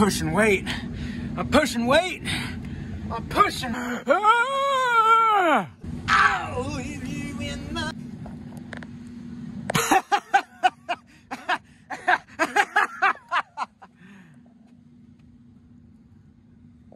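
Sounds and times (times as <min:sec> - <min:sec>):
man laughing hard: 0:09.7 - 0:14.0.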